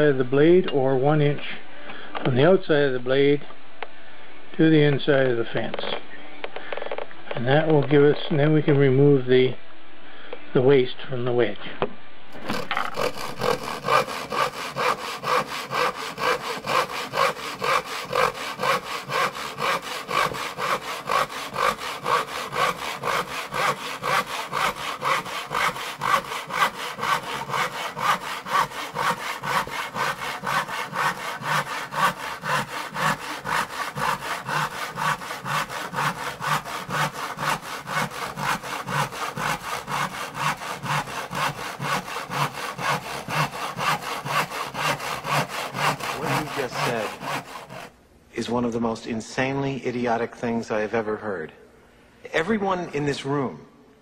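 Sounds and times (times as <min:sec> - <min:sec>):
saw cutting wood: 0:12.3 - 0:48.0.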